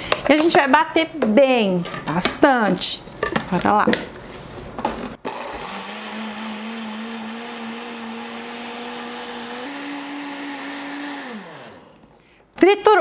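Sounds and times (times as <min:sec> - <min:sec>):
blender motor running: 0:05.3 - 0:12.2.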